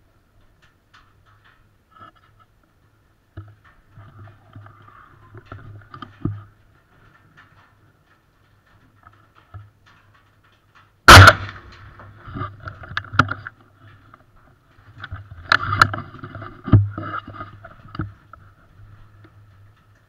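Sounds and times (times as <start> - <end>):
rifle handling clicks and knocks: 0.4 - 20.0
loud rifle shot: 11.1 - 11.7.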